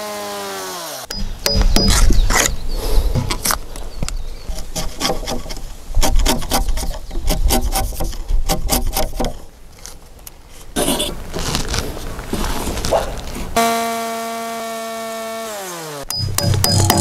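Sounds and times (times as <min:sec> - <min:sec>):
rough scraping on wood: 0:01.2 - 0:13.6.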